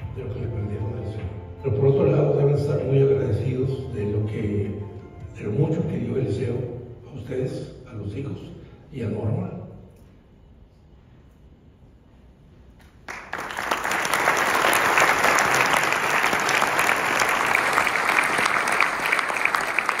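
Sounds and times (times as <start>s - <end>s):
audience applause: 13.0s - 20.0s.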